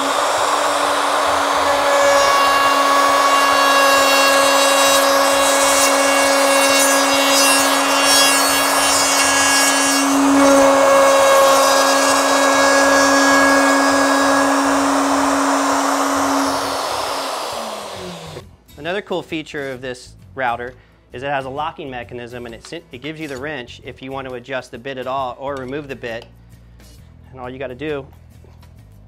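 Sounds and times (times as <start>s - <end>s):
router whining: 0.0s - 18.4s.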